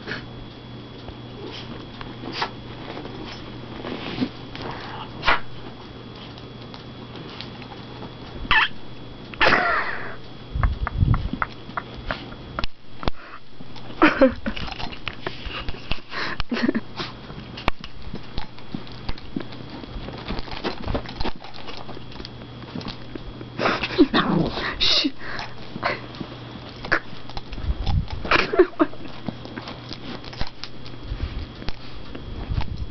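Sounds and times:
small dogs making short vocal sounds: 8.5 - 8.8.

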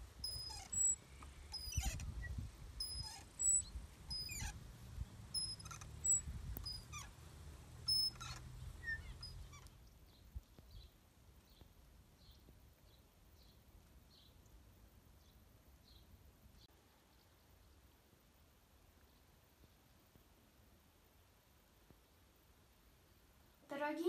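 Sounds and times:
birds chirping: 0.0 - 14.6.

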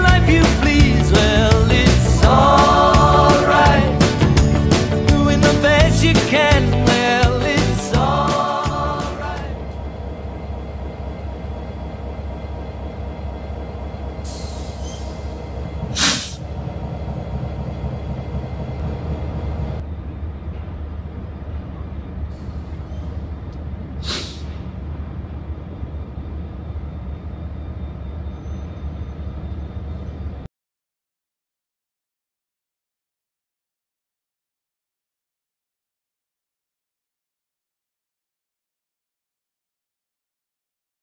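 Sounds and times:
diesel locomotive engine rumble: 0.0 - 30.5
air brake hissing: 14.2 - 16.5, 22.3 - 23.3, 24.0 - 24.8.

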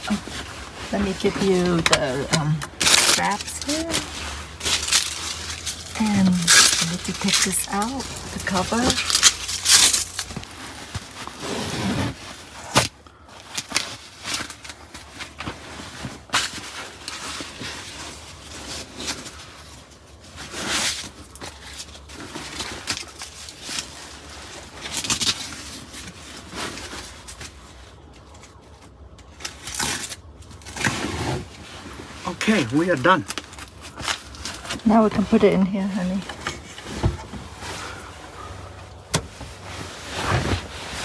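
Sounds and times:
bedding rustling and scraping: 0.0 - 41.0.

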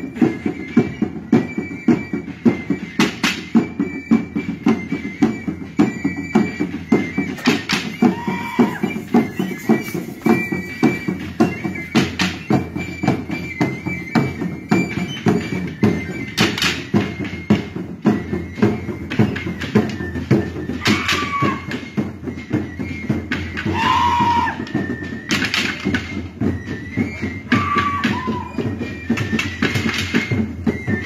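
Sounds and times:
drum beating steady rhythm: 0.0 - 31.0
thin high melody: 5.5 - 16.4.

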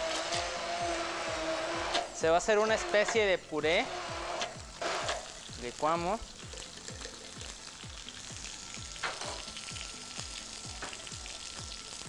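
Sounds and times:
fish sizzling in a pan: 4.5 - 12.0.

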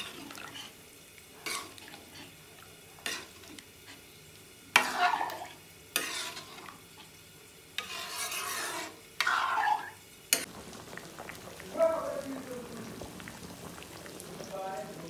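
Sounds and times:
curry bubbling softly: 0.0 - 15.0
sizzling in hot pan: 0.0 - 15.0
ladle scraping metal pan: 1.4 - 2.4, 3.0 - 4.0, 4.8 - 6.8, 7.8 - 10.5.

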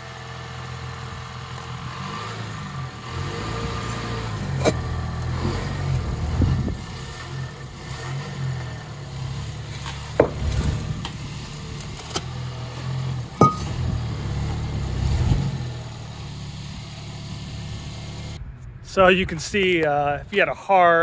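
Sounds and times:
truck engine rumbling: 0.0 - 21.0
concrete block knocking on pavement: 10.1 - 10.6, 13.4 - 13.8.

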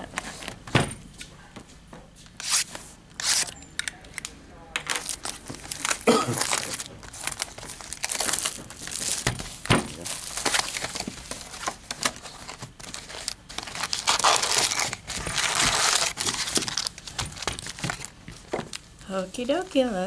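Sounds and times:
plastic wrapping crinkling and tearing: 2.4 - 3.6, 4.2 - 18.8
cardboard box rustling: 5.0 - 18.7.

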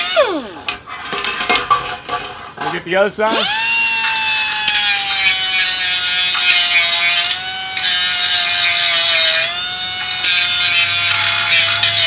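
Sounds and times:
air grinder whining on metal: 0.0 - 0.8, 3.3 - 12.0.

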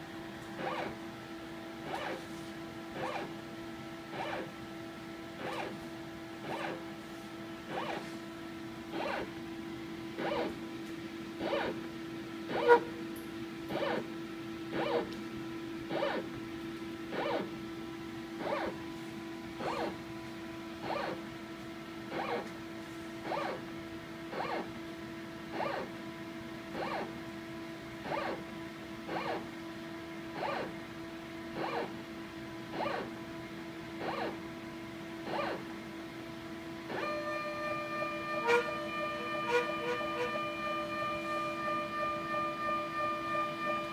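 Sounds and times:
mechanical whir of motor: 0.0 - 1.0, 1.8 - 3.5, 4.1 - 4.7, 5.3 - 7.0, 7.6 - 9.4, 10.1 - 10.7, 11.3 - 17.7, 18.4 - 18.9, 19.5 - 20.2, 20.8 - 21.4, 22.0 - 26.0, 26.6 - 27.2, 28.0 - 29.6, 30.3 - 30.9, 31.5 - 33.2, 33.8 - 35.9, 36.8 - 43.9
electrical hum: 0.0 - 43.9
high steady tones: 37.0 - 43.9.

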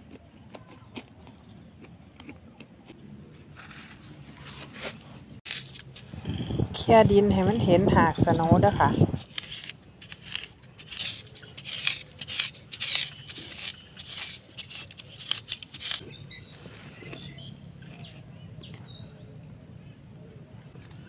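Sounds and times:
stick scraping dry soil: 3.4 - 7.2, 8.3 - 18.2.

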